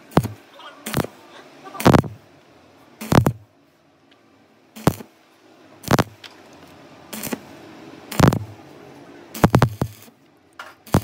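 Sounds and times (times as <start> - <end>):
welding arc crackling: 0.0 - 2.2, 3.0 - 3.5, 4.8 - 5.1, 5.8 - 6.2, 7.1 - 7.5, 8.1 - 8.5, 9.3 - 10.2.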